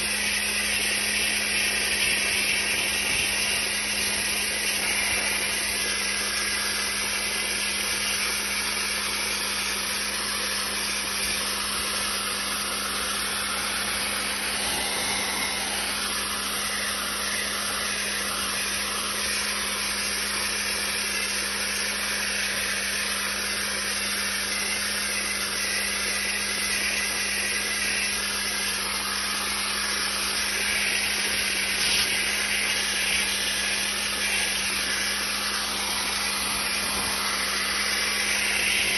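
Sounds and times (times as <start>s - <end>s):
dry-ice blasting hiss: 0.0s - 8.4s, 27.6s - 38.9s.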